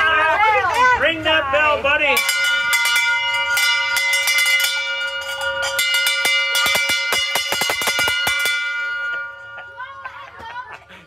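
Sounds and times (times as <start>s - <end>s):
brass bell ringing: 2.1s - 10.3s.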